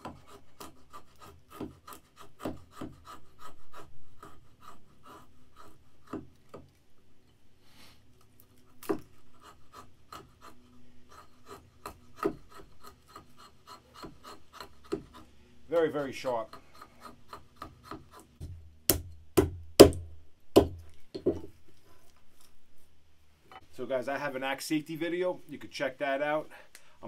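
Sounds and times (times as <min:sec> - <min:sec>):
hatchet scraping wood: 0:00.0 - 0:06.8, 0:08.2 - 0:22.0
sharp knocks: 0:17.6 - 0:21.5.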